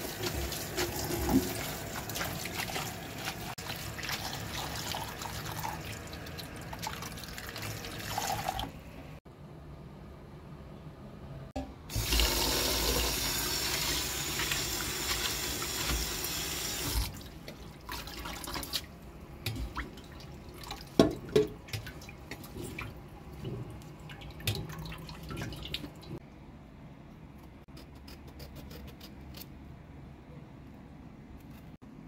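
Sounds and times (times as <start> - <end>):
tap water running into sink: 11.9 - 17.2.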